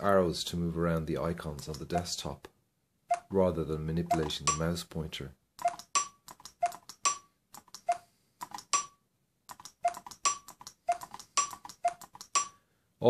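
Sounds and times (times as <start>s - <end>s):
short ringing ticks: 9.9s - 12.6s.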